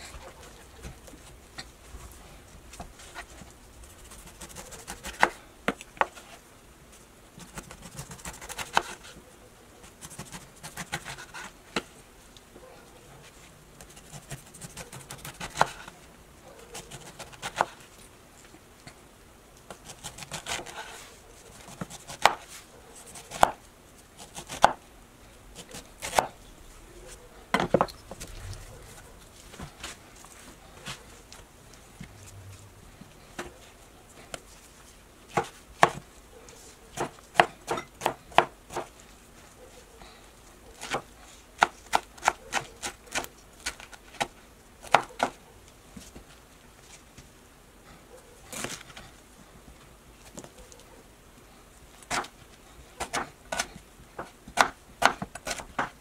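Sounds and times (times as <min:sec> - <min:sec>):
knife cutting pineapple: 0:07.4 - 0:09.1, 0:13.8 - 0:15.9.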